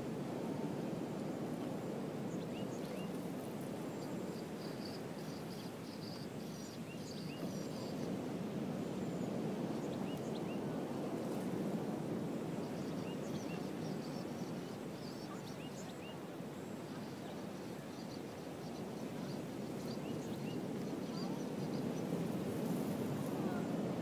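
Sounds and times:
low rushing beach ambience: 0.0s - 24.0s
faint bird chirps: 12.6s - 22.3s.

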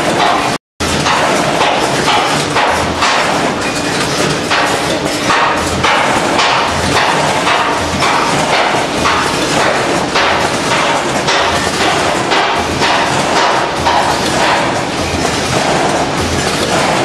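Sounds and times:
machinery clattering: 0.0s - 17.0s.

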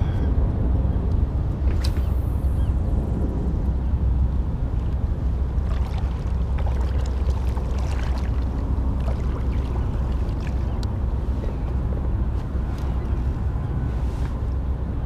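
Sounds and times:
wind rumble on microphone: 0.0s - 15.0s
water lapping: 4.8s - 14.2s
small ticks and splashes: 5.6s - 10.9s.

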